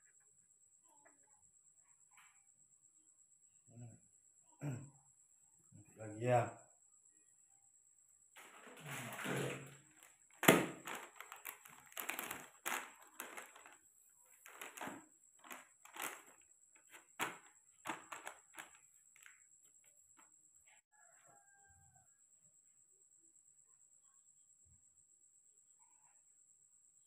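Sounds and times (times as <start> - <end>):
plastic clicking and crinkling: 9.8 - 13.8, 14.4 - 19.4.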